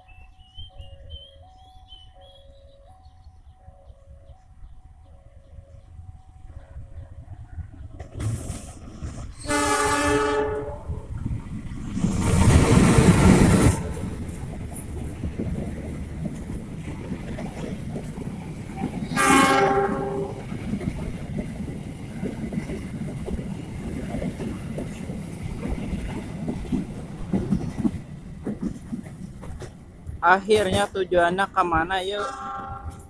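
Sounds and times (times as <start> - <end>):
train rumbling past: 0.0 - 33.0
train horn: 9.4 - 11.0, 12.4 - 14.1, 19.1 - 20.4, 32.2 - 33.0.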